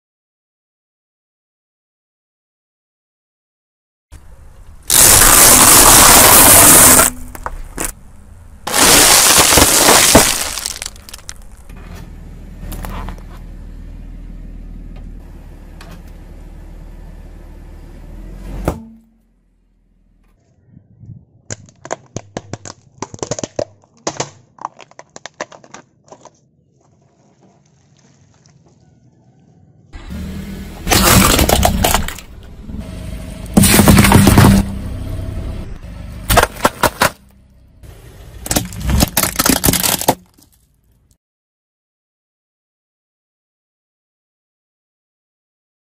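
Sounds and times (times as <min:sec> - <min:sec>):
objects crushed under car tyre: 0:04.9 - 0:08.0, 0:08.7 - 0:11.7, 0:21.5 - 0:27.6, 0:30.8 - 0:32.4, 0:33.5 - 0:34.7, 0:36.3 - 0:37.3, 0:38.4 - 0:41.0.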